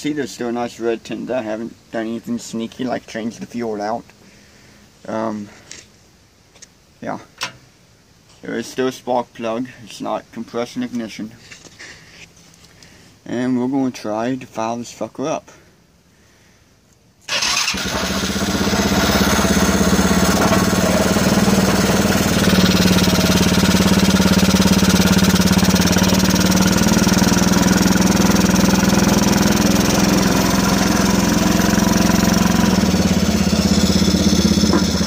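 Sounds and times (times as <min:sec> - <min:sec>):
single-cylinder engine running: 0:17.3 - 0:35.0.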